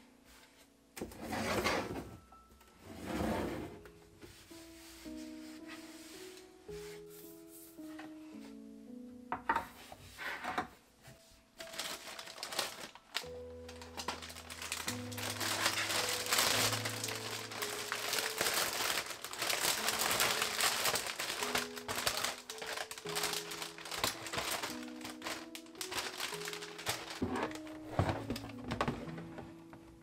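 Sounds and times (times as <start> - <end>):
background music: 0.0 - 30.0
plastic packaging crinkling: 11.6 - 29.0.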